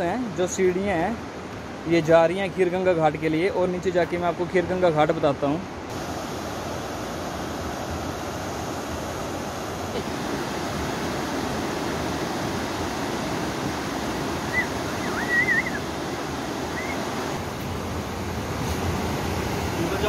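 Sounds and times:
river rapids rushing: 5.9 - 20.0
high wavering whistle-like call: 14.4 - 15.9, 16.7 - 17.1.

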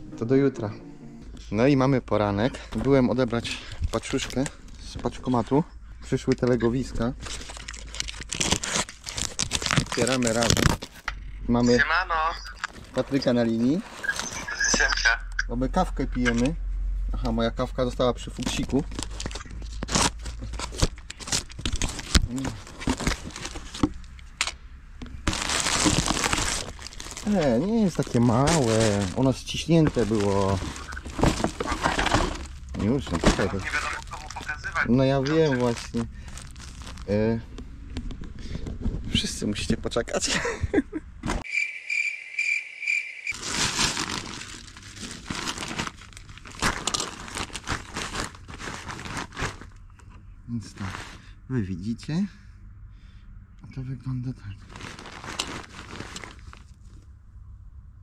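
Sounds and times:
plastic packaging crinkling: 2.6 - 4.9, 6.7 - 11.1, 18.3 - 24.4, 25.1 - 37.3, 43.3 - 49.8, 54.6 - 56.9
cricket chirping: 41.4 - 43.4.

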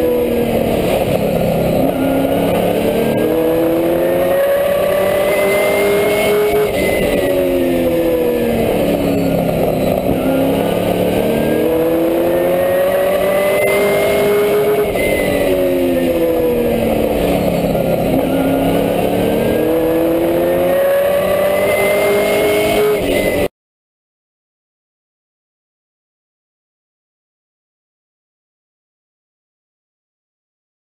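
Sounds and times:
race truck engine: 0.0 - 23.5
wind and road noise: 0.0 - 23.5.

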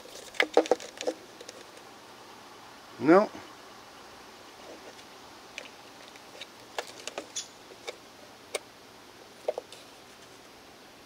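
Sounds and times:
batteries and plastic holder clicking: 5.6 - 8.6.

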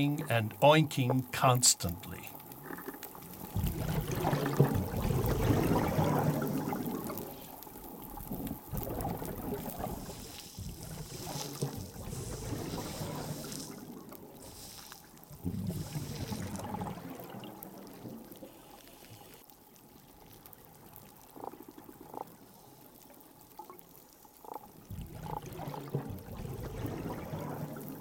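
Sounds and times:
low underwater gurgling: 0.0 - 18.5, 24.4 - 28.0
pulsed fish calls: 0.0 - 19.4, 24.0 - 28.0.

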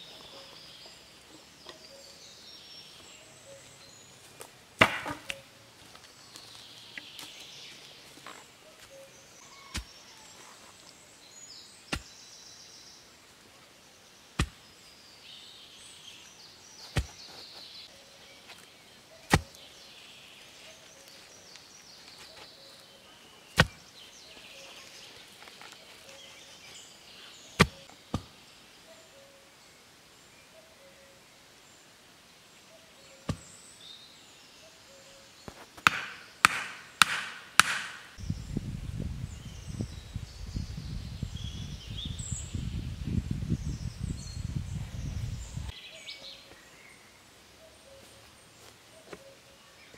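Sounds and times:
wooden stakes knocked into ground: 4.4 - 5.4, 14.4 - 14.6, 16.9 - 17.4, 19.2 - 19.6, 23.6 - 23.8, 27.6 - 28.3, 35.5 - 38.2.

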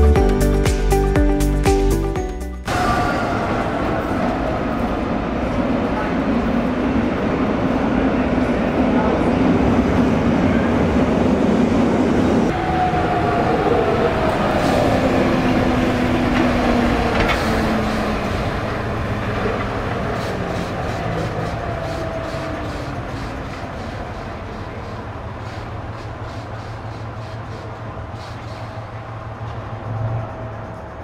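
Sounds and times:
diesel locomotive engine drone: 2.6 - 31.0
train wheels clicking over rails: 14.1 - 31.0.

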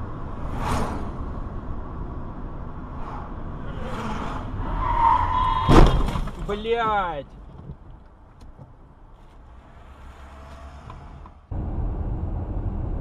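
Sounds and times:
road and engine noise: 0.0 - 13.0
vehicles passing: 0.0 - 13.0
loud thump: 5.6 - 6.7.

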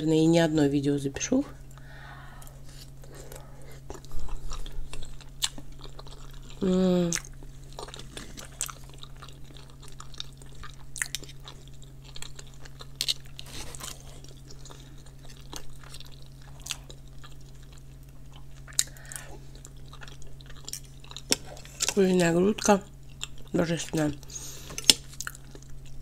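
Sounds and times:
low hum: 0.0 - 12.6, 13.3 - 23.0
chewing and mouth sounds: 1.7 - 26.0.

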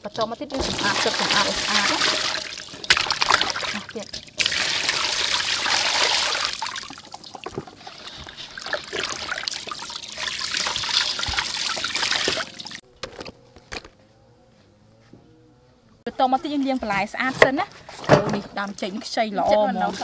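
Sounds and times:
water pouring into metal basin: 0.5 - 12.8.

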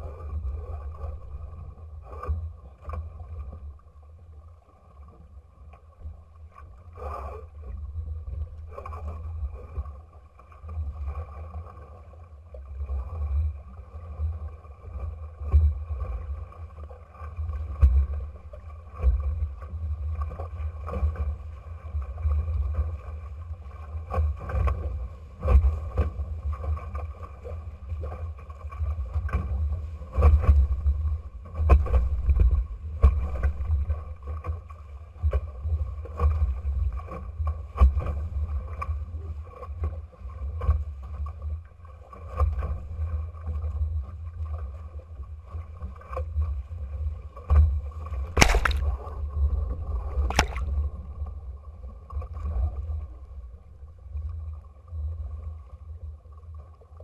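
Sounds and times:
wind rumble on microphone: 5.0 - 41.3
water splashing against hull: 47.5 - 51.5.

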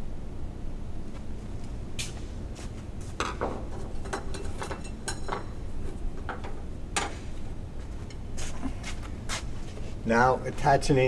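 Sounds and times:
metal hardware clinking and rattling: 3.3 - 7.2.

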